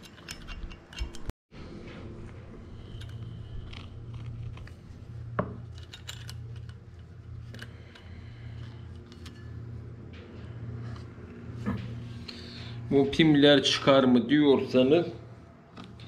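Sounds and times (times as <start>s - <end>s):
tools and metal parts clinking: 0.0s - 1.3s, 5.4s - 9.6s
low steady hum: 0.1s - 16.0s.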